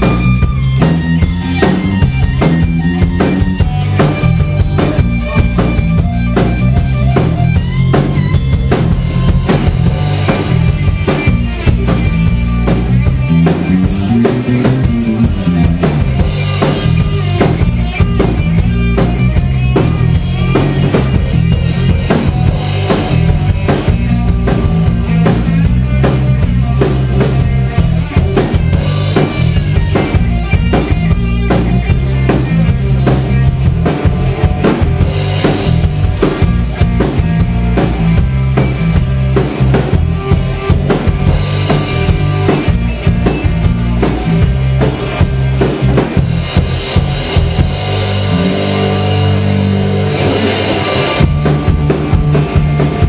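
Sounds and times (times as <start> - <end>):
bass guitar: 0.0 - 53.0
electric guitar lead: 0.0 - 53.0
pounding drum kit: 0.0 - 53.0.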